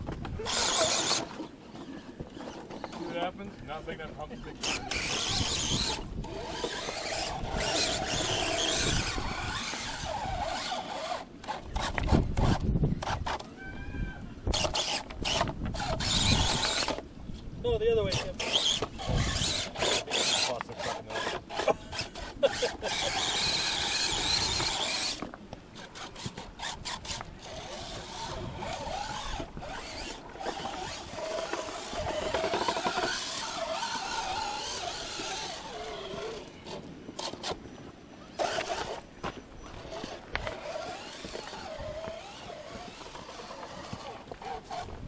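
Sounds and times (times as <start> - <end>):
electric motor and gears whining: 0.0 - 17.1, 17.7 - 45.0
tyres clattering on rocks: 18.1 - 37.6.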